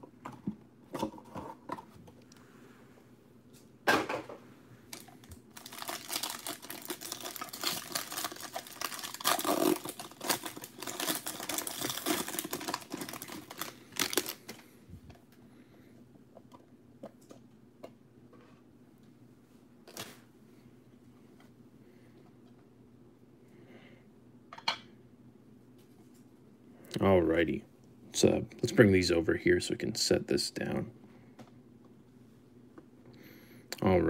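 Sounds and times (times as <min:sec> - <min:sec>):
foil wrapper tearing and crinkling: 0:05.5 - 0:14.6.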